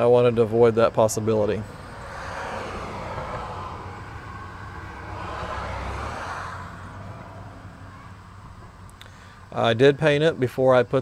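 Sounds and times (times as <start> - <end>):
vehicle passing: 1.2 - 8.9.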